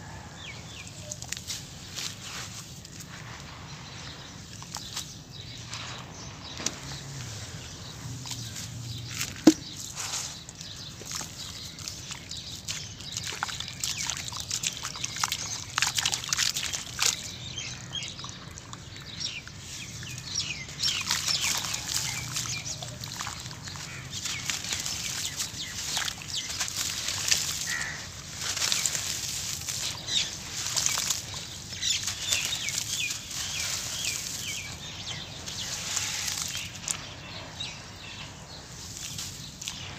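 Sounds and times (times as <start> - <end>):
hands squelching wet cement paste: 0.2 - 39.9
gritty crackles: 20.0 - 37.9.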